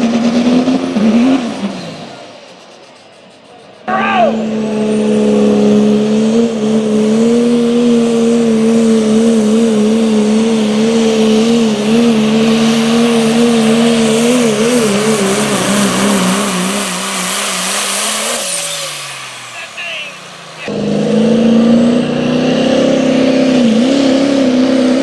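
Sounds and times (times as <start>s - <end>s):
diesel engine at full throttle: 0.0s - 25.0s
tyre and turbo hiss: 12.2s - 20.7s.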